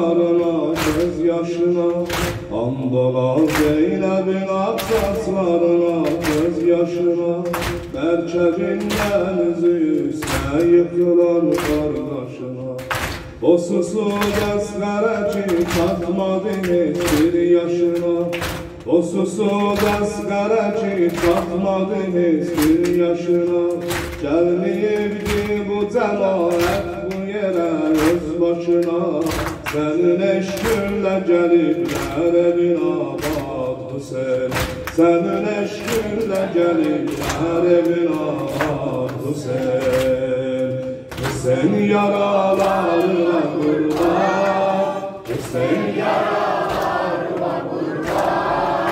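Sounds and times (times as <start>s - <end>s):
man chanting: 0.0s - 45.9s
people slapping chests: 0.2s - 48.9s
chest beating slaps: 2.0s - 2.6s, 7.4s - 9.3s, 17.0s - 18.9s, 34.4s - 35.2s.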